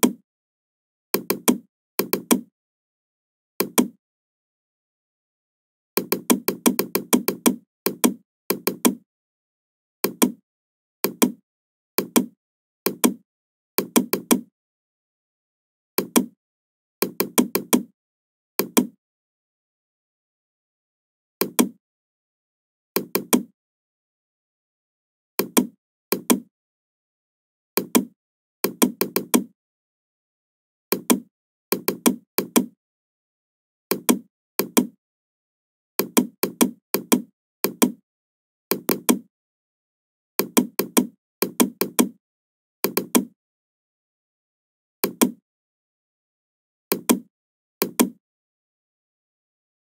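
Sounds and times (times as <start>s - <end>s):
mouse and keyboard clicks: 1.2s - 2.5s, 3.6s - 4.0s, 6.0s - 9.0s, 10.0s - 10.4s, 11.0s - 11.4s, 12.0s - 13.2s, 13.8s - 14.5s, 16.0s - 16.4s, 17.0s - 17.9s, 18.6s - 19.0s, 21.4s - 21.8s, 23.0s - 23.5s, 25.4s - 26.5s, 27.8s - 29.5s, 30.9s - 32.8s, 33.9s - 35.0s, 36.0s - 38.0s, 38.7s - 39.3s, 40.4s - 42.2s, 42.8s - 43.3s, 45.0s - 45.4s, 46.9s - 48.2s.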